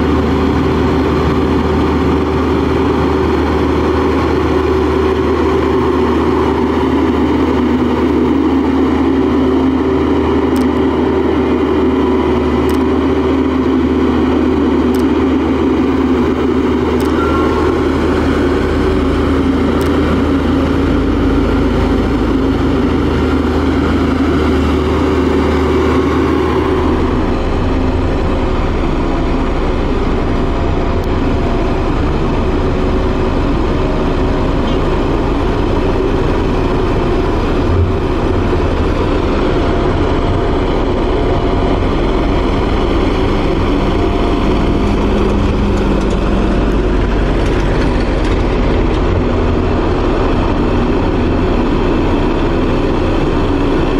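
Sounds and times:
diesel engine rumbling: 0.0s - 53.9s
roller working over gravel: 23.0s - 53.9s.

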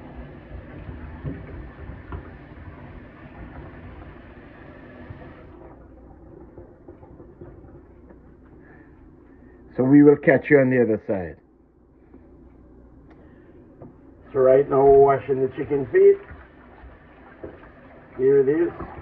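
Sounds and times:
tap water running into a pan: 0.0s - 5.8s, 14.3s - 19.0s.

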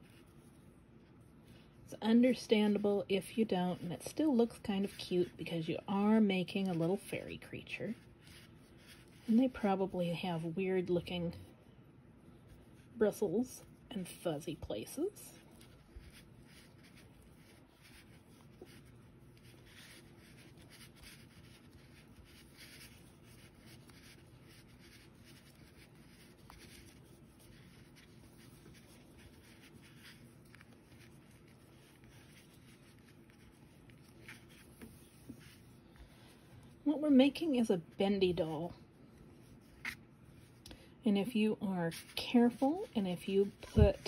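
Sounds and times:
yarn rustling: 14.0s - 40.6s, 41.2s - 44.0s.

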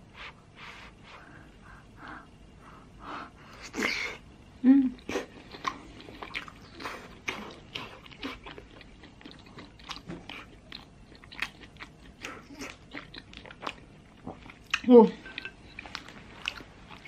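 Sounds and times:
person chewing wet smacks: 5.0s - 17.0s.

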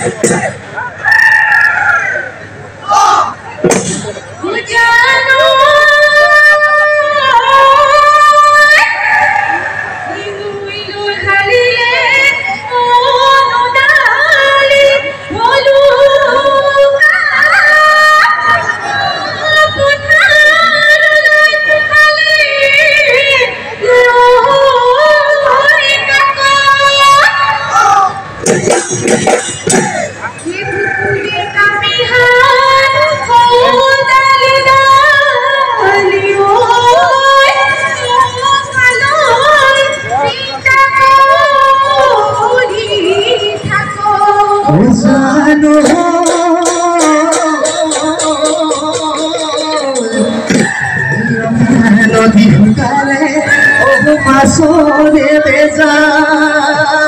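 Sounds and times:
woman singing: 4.4s - 9.0s, 10.1s - 27.7s, 30.4s - 50.6s, 51.6s - 57.0s
faint rhythmic percussion ticks: 45.8s - 50.7s.

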